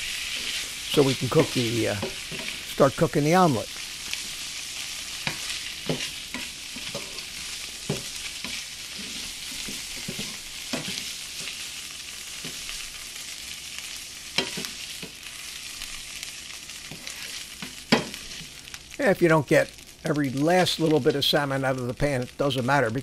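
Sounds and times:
butter sizzling in a frying pan: 0.0s - 23.0s
fork and spatula scraping pan: 5.3s - 11.5s.

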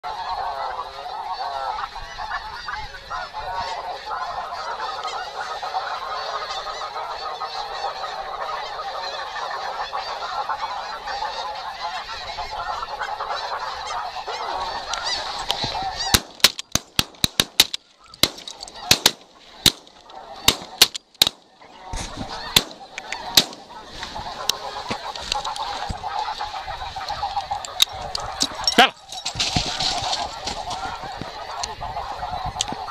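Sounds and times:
geese honking: 0.0s - 32.9s
loud shotgun shots: 16.1s - 21.5s, 22.5s - 23.8s.

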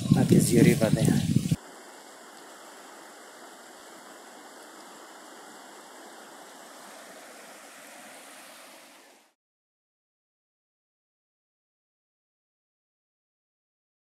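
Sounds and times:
river rushing over rapids: 1.5s - 9.4s.

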